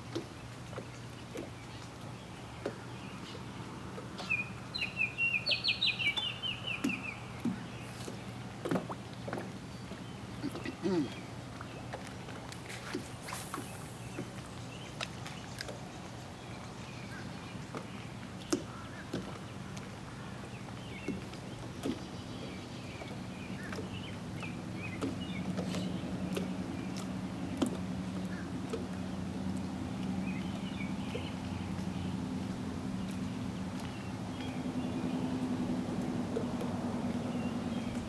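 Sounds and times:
small birds chirping: 0:00.7 - 0:08.4, 0:12.7 - 0:35.5
distant engine droning: 0:17.0 - 0:38.0.

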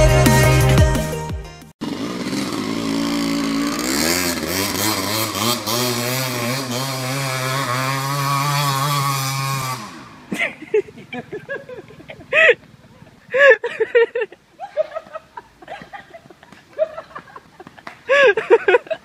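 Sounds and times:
electronic music: 0:00.0 - 0:01.7
dirt bike engine revving: 0:01.8 - 0:11.9.

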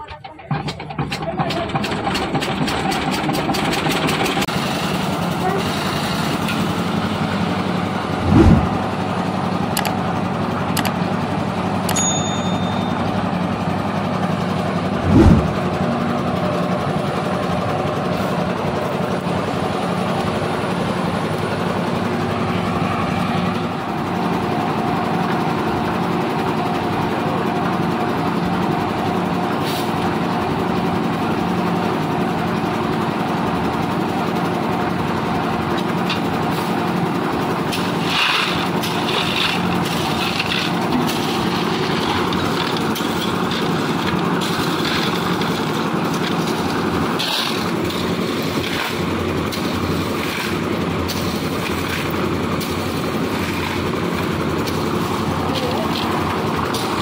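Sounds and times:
concrete mixer diesel engine running: 0:00.0 - 0:57.0
low thumps: 0:08.1 - 0:08.8, 0:15.0 - 0:15.7.

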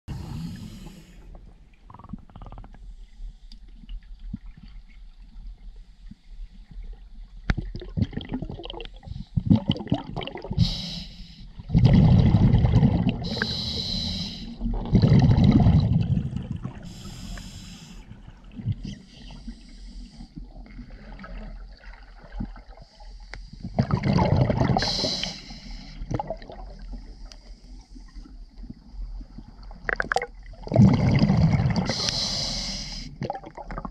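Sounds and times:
scuba regulator breathing: 0:00.1 - 0:01.4, 0:10.6 - 0:11.5, 0:13.2 - 0:14.7, 0:16.8 - 0:18.2, 0:18.9 - 0:20.4, 0:24.8 - 0:26.1, 0:31.9 - 0:33.2
faint clicking and crackling: 0:01.3 - 0:07.7, 0:27.2 - 0:30.4
exhaled bubbles rushing: 0:07.6 - 0:10.6, 0:11.6 - 0:13.5, 0:14.6 - 0:17.0, 0:23.8 - 0:25.0, 0:26.1 - 0:27.0, 0:29.8 - 0:32.0, 0:33.2 - 0:33.9.

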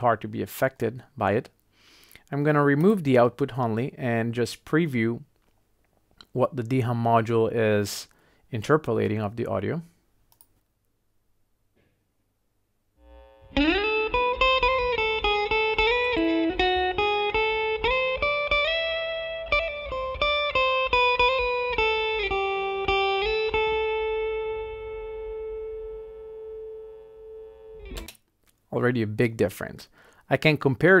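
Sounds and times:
electric guitar melody with slides: 0:13.1 - 0:28.1.

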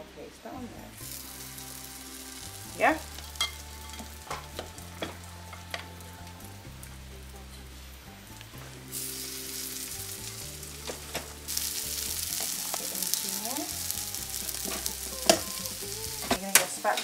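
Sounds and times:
patties sizzling in a frying pan: 0:00.8 - 0:17.0
metal spoon clinking glass bowl: 0:03.1 - 0:05.9.

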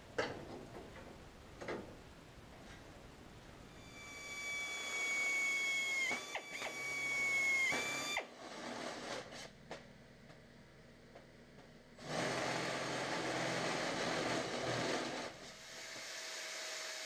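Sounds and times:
power tool cutting sheet metal: 0:03.8 - 0:09.4, 0:12.0 - 0:17.0.

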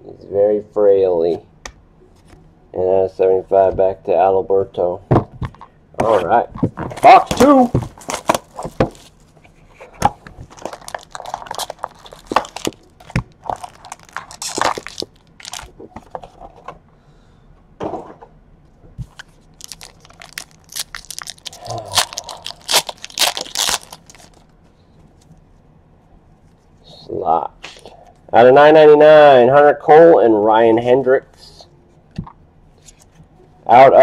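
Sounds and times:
cardboard box opening: 0:06.8 - 0:09.1
cellophane wrap crinkling and tearing: 0:06.9 - 0:09.3, 0:10.4 - 0:15.8, 0:19.1 - 0:24.5
foil packs rustling: 0:06.9 - 0:09.4, 0:10.4 - 0:16.4, 0:19.5 - 0:24.4.

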